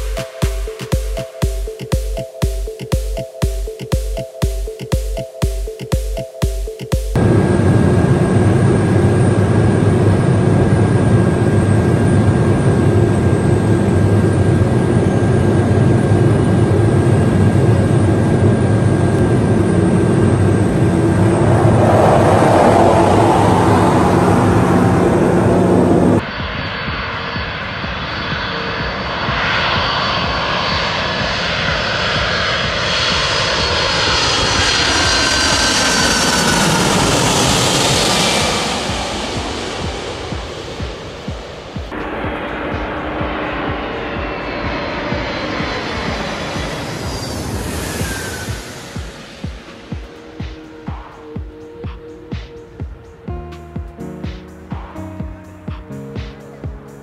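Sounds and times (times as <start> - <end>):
jet aircraft drone: 0.0 - 57.0
low-flying jet engine whine: 7.1 - 57.0.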